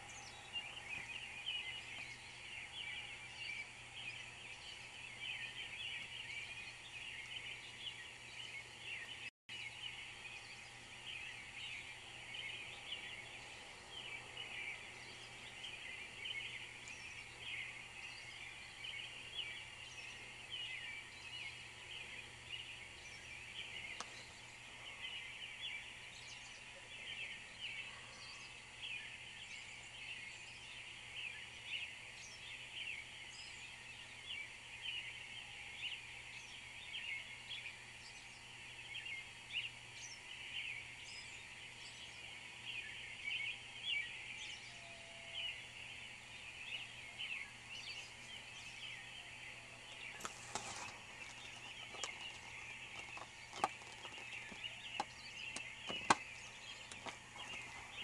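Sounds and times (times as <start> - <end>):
many birds chirping: 0.0 - 58.0.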